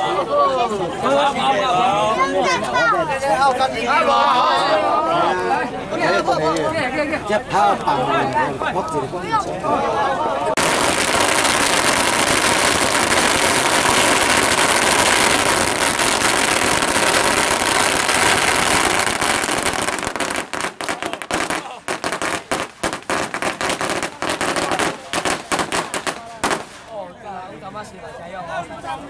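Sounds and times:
firecrackers crackling: 10.6s - 27.1s.

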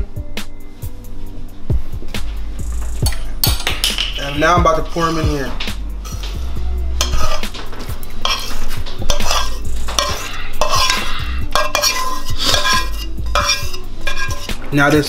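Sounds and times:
metal spoon scraping a skillet: 4.2s - 15.0s.

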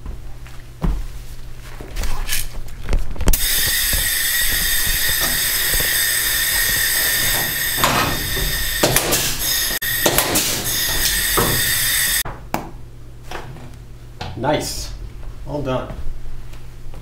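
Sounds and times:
air rivet gun hissing: 3.4s - 12.2s.

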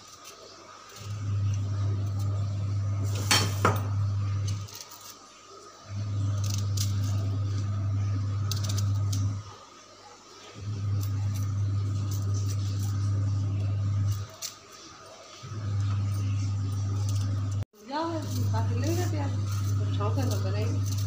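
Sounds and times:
steady low hum: 1.0s - 4.7s, 5.9s - 9.5s, 10.6s - 14.4s, 15.4s - 21.0s.

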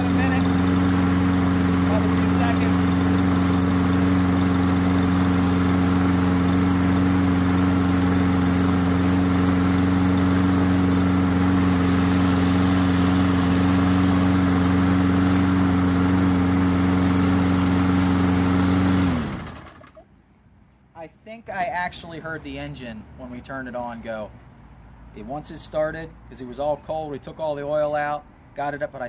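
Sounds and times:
lawn mower engine running: 0.0s - 20.1s.

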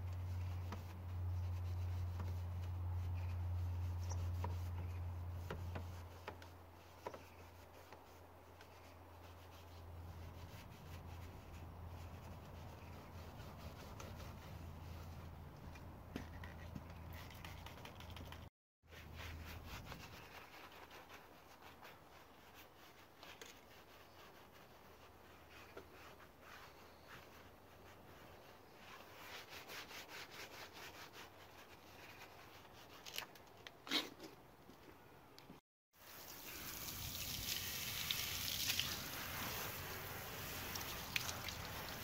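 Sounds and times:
brush bristles rubbing on plastic: 0.0s - 15.4s, 16.2s - 33.3s, 38.7s - 42.0s.

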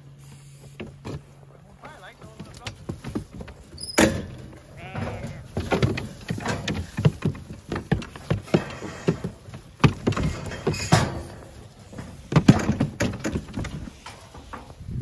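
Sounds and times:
sheep knocking against metal gates: 2.7s - 13.9s.

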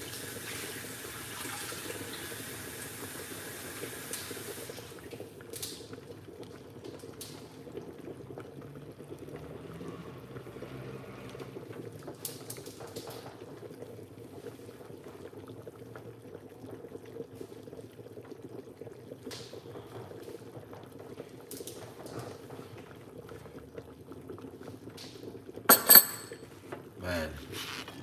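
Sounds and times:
soup bubbling in a pot: 0.0s - 25.7s, 26.4s - 28.0s
metal lid clanking: 25.7s - 26.4s.

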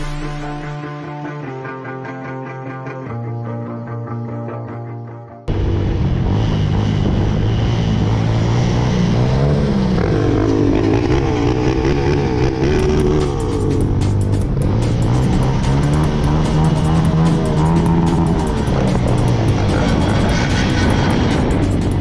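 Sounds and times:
motorcycle engine running: 5.5s - 22.0s.

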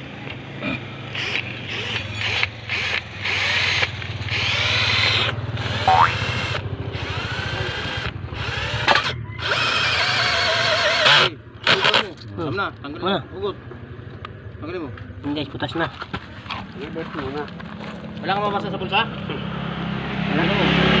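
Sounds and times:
power drill boring into plastic pipe: 1.2s - 12.1s.

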